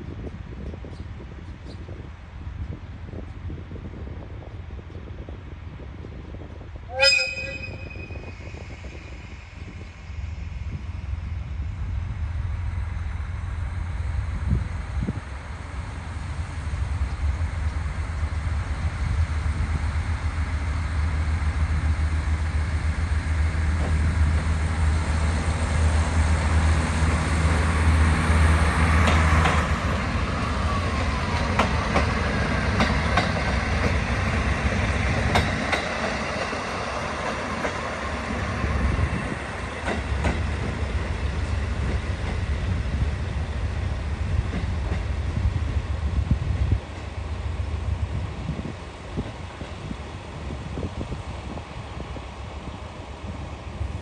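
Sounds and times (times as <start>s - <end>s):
wheel squeal: 7.0s - 9.6s
train wheels clicking over rail joints: 27.0s - 42.8s, 43.8s - 45.8s.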